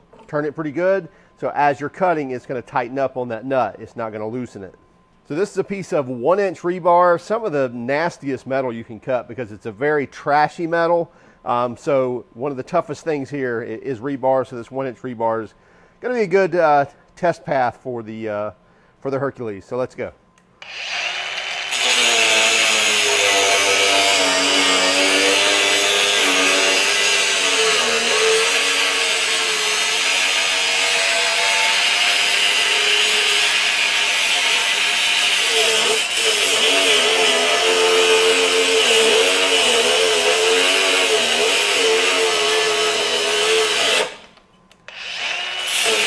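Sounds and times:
angle grinder cutting metal: 0:20.6 - 0:46.0.

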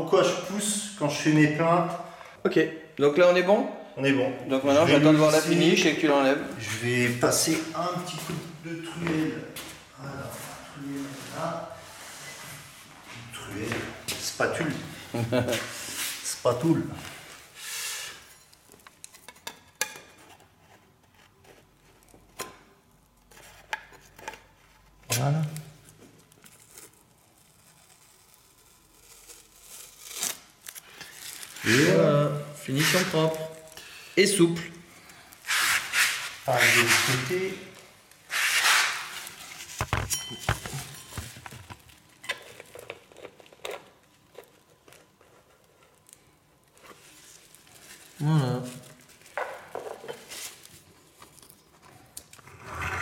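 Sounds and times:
metallic clink: 0:40.1 - 0:41.2.

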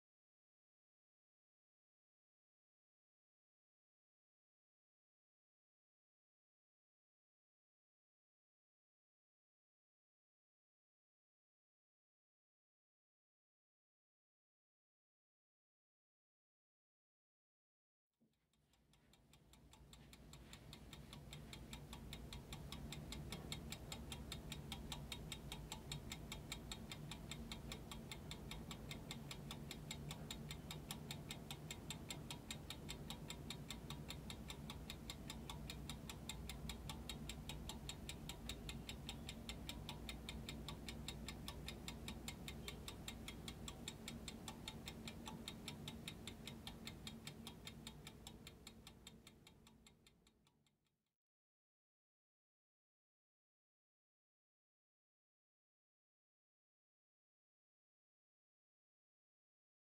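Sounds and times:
clock ticking fast: 0:18.8 - 0:50.4.

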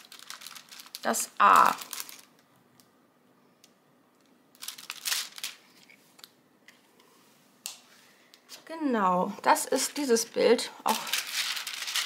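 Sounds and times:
plastic film rustling: 0:00.0 - 0:02.5, 0:04.5 - 0:06.3, 0:10.9 - 0:12.0.

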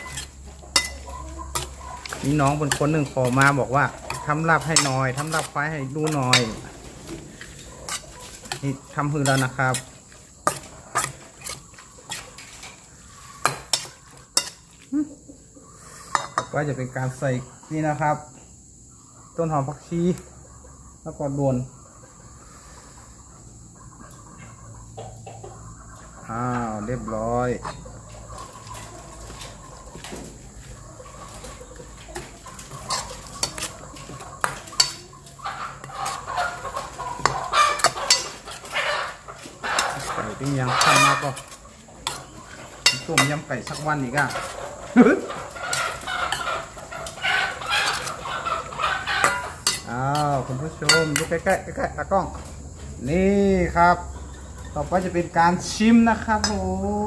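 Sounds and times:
metal utensils clinking dish: 0:00.0 - 0:06.6, 0:07.8 - 0:12.6, 0:32.8 - 0:35.1, 0:37.2 - 0:38.7, 0:42.8 - 0:44.4, 0:49.2 - 0:51.5.

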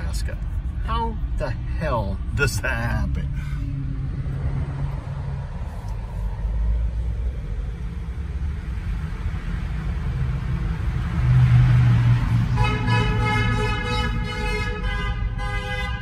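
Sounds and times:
engine and tyres drone: 0:02.9 - 0:14.8.

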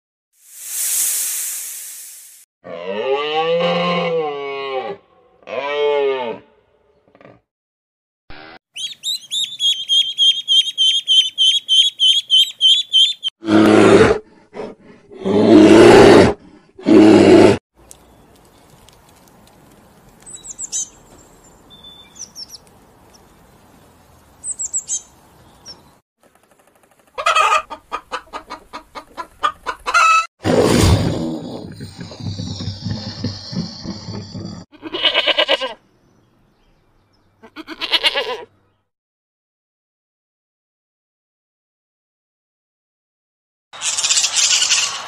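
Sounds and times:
high bird chirps: 0:08.8 - 0:13.3, 0:20.2 - 0:23.2, 0:24.4 - 0:26.0
chicken clucking: 0:27.2 - 0:30.3.

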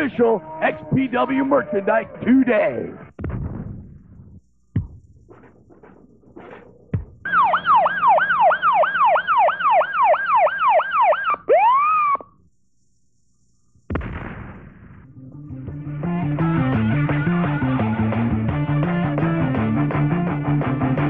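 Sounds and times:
electronic siren wails: 0:00.0 - 0:02.4, 0:07.2 - 0:12.4
crash: 0:13.9 - 0:15.1.

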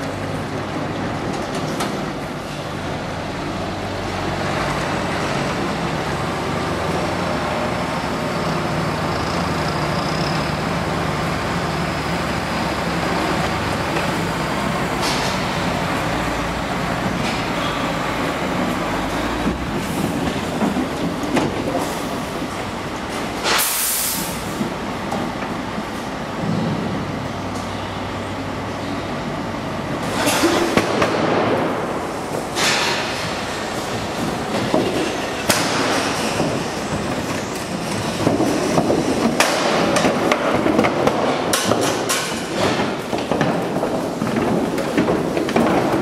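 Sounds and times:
trailer rattling and clunking: 0:00.0 - 0:28.6, 0:29.3 - 0:46.0
diesel lorry engine reversing: 0:00.0 - 0:39.9
cattle hooves on metal ramp: 0:13.2 - 0:22.2, 0:32.5 - 0:46.0
air brakes hissing: 0:23.4 - 0:24.6.

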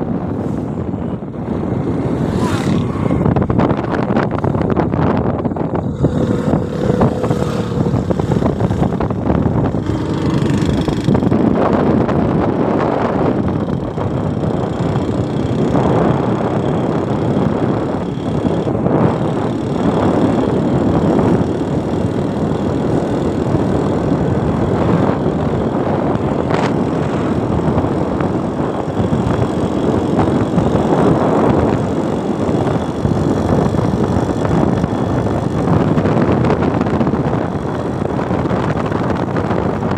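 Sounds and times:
motorcycle riding along road: 0:00.0 - 0:39.9.

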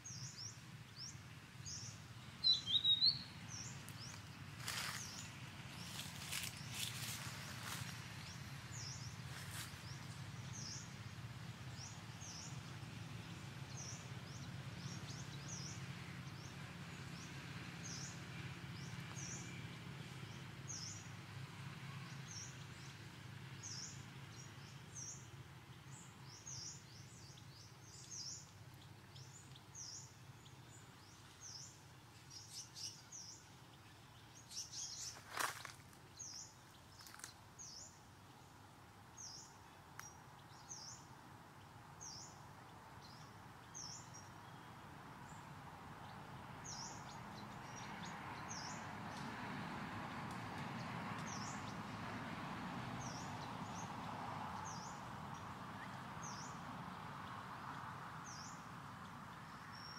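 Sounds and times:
small bird chirping: 0:00.0 - 0:10.9
steady background noise: 0:00.0 - 0:52.7.

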